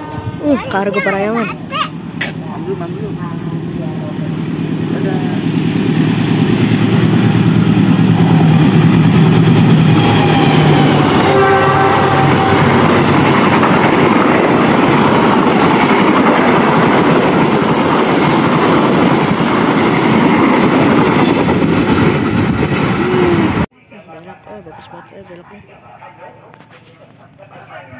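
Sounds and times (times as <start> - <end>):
train horn: 0.0 - 0.5, 9.9 - 13.2
train wheels rumbling on rails: 1.9 - 23.7.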